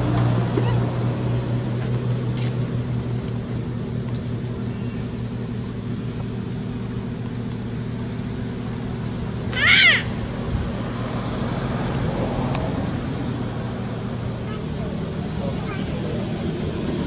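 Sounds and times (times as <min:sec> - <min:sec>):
constant hiss: 0:00.0 - 0:17.0
low motor hum: 0:00.0 - 0:17.0
faint ticks: 0:07.2 - 0:07.8, 0:08.6 - 0:09.4.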